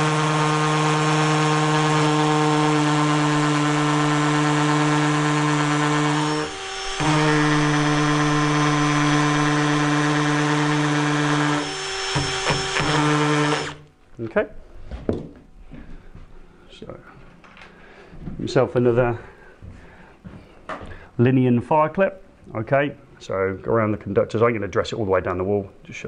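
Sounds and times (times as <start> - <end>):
hammer drill boring into block: 0.0 - 13.8
knocks: 12.1 - 13.0.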